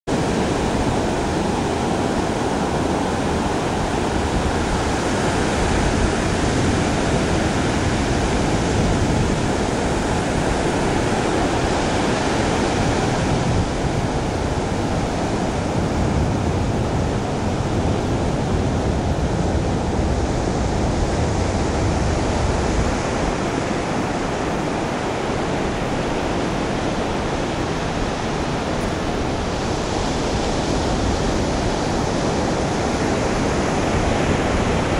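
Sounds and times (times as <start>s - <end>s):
surf washing on a beach: 0.1s - 34.9s.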